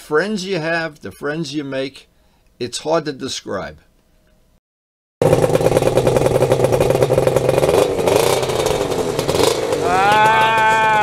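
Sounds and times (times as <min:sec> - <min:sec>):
two-stroke motorcycle engine running: 0:05.2 - 0:11.0.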